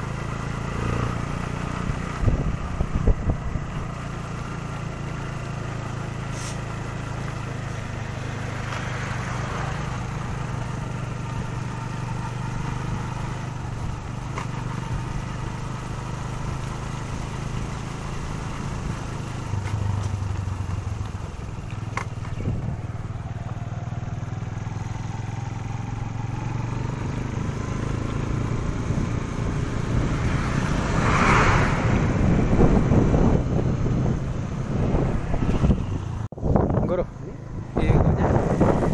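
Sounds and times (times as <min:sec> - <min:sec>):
motorcycle engine running: 0:00.0 - 0:38.9
wind noise: 0:01.9 - 0:03.9, 0:22.3 - 0:22.9, 0:28.5 - 0:38.9.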